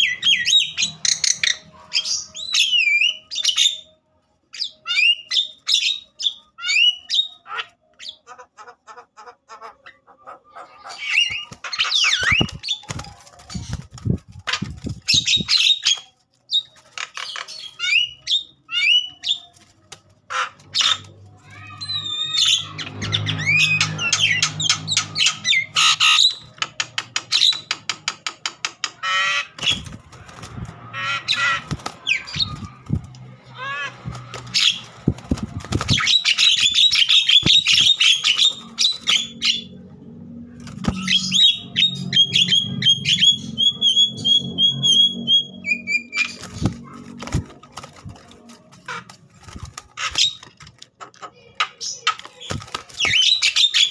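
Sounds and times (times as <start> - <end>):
bird squawking and whistling: 0.0 - 3.9, 4.6 - 8.4, 10.5 - 13.8, 14.5 - 19.5, 20.3 - 26.5, 30.9 - 32.8, 35.8 - 39.7, 40.8 - 47.0, 51.8 - 53.9
wing flapping: 11.3 - 16.2, 29.6 - 39.2, 46.1 - 50.9.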